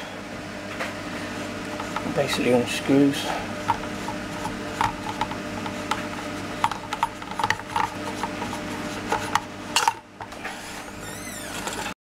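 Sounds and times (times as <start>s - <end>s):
high squeak: 10.6s - 11.9s.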